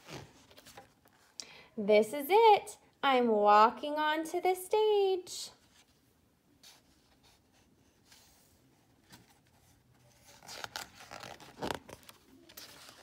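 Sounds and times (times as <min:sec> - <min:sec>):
book page turning: 0:00.0 - 0:01.3, 0:08.0 - 0:13.0.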